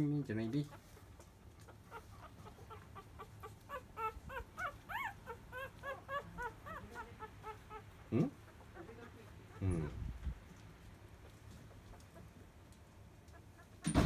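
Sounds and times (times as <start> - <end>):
puppies squeaking: 0.6 - 10.1.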